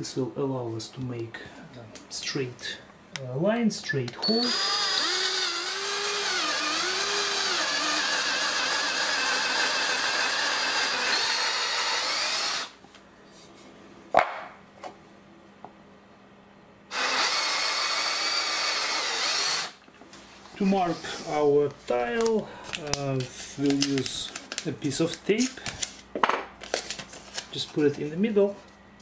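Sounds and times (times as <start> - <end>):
power drill boring into wood: 4.2 - 12.8, 16.9 - 19.8.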